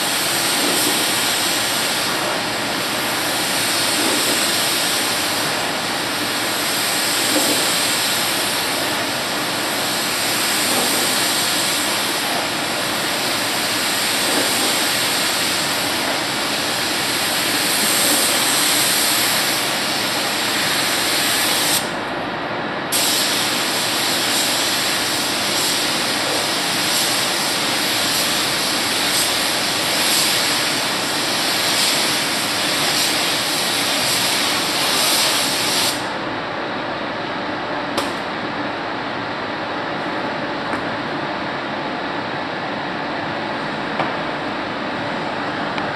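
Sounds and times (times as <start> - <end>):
paint spray gun hissing: 0.0 - 21.9, 22.9 - 36.0.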